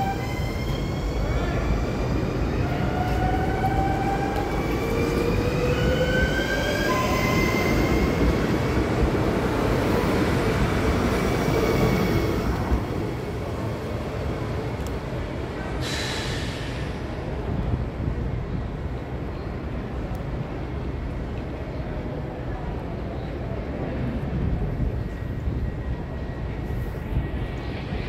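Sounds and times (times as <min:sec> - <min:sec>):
short hiss: 0:15.8 - 0:17.0.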